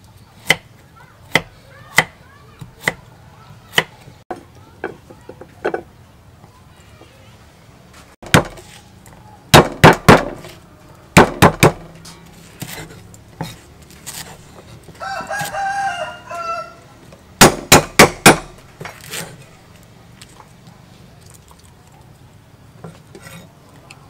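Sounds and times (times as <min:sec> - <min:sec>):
cleaver chopping on wooden block: 0:08.2 - 0:08.6, 0:09.5 - 0:10.5, 0:11.2 - 0:11.9, 0:17.4 - 0:18.6
rooster crowing: 0:15.0 - 0:16.9.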